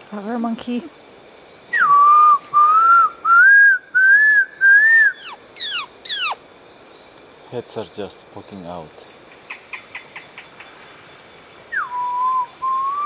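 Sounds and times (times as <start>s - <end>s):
person whistling: 11.8s - 13.0s.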